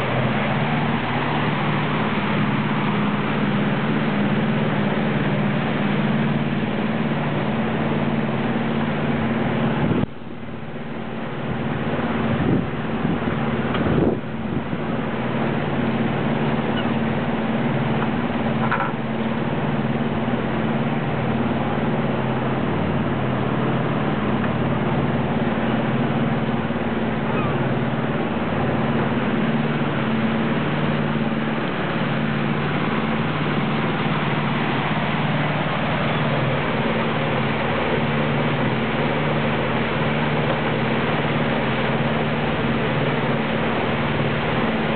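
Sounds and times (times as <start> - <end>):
boat engine humming: 0.0 - 44.9
water rushing: 0.0 - 44.9
wind: 0.0 - 44.9.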